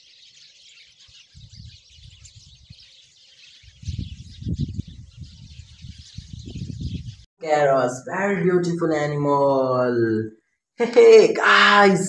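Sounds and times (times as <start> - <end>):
small birds chirping: 0.0 - 7.3.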